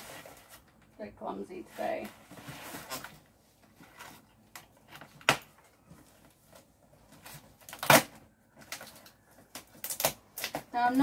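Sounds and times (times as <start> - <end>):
cardboard and tape scraping: 0.0 - 0.8, 1.5 - 5.4.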